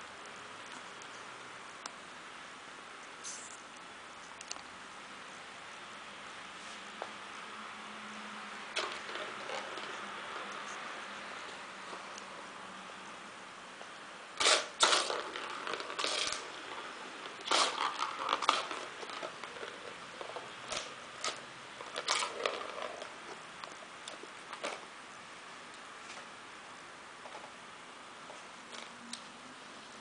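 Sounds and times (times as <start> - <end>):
ball rattling in plastic track: 8.8 - 10.6, 14.4 - 23.3, 24.1 - 24.9.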